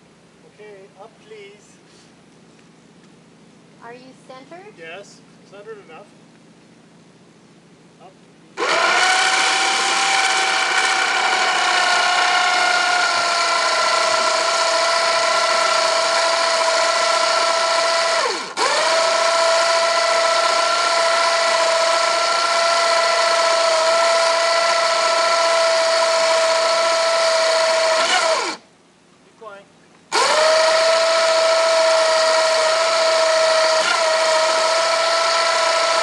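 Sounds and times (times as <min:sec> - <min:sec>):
electric winch motor whining: 0:08.6 - 0:28.6, 0:30.1 - 0:36.0.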